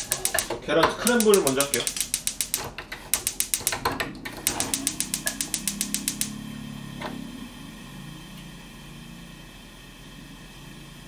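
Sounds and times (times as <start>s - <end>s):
spark igniter clicking: 0.0s - 6.4s.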